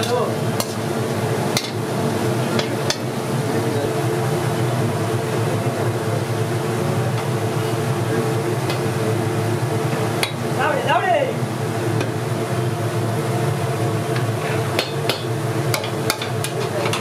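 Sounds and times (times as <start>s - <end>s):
street kitchen din: 0.0s - 17.0s
utensils clinking on cookware: 14.4s - 17.0s.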